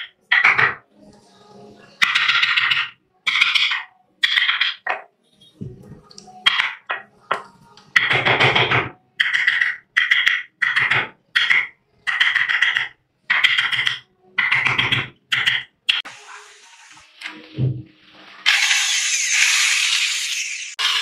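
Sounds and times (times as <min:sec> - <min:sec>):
electric drill boring wood: 0:18.5 - 0:21.0.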